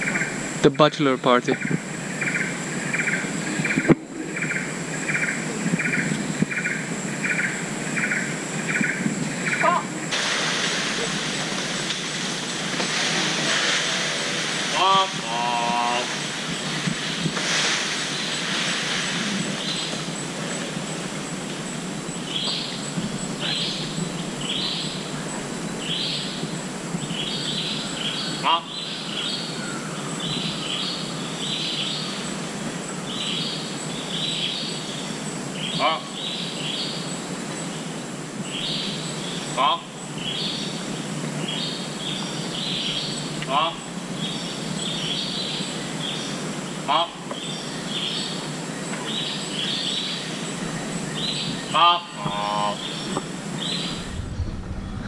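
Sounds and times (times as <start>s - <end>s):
high insect-like whine: 0.0s - 54.9s
insect chirping in buzzy pulses: 0.0s - 55.0s
rainforest hiss: 0.0s - 55.0s
low engine hum: 53.0s - 55.0s.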